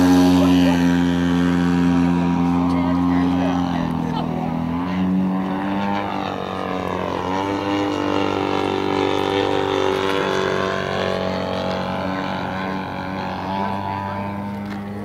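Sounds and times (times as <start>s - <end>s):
model plane engine wavering: 0.0s - 15.0s.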